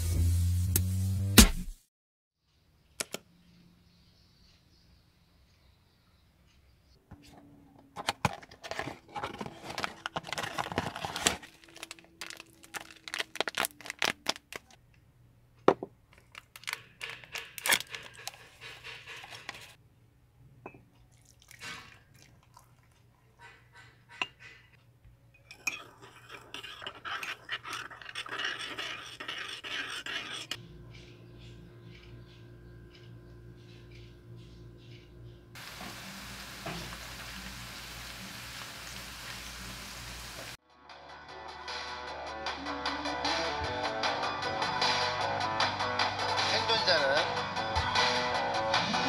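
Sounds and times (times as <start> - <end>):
foil sachet crinkling: 9.3 - 14.8, 16.2 - 18.4
spoon stirring in mug: 17.0 - 19.8, 25.4 - 30.6.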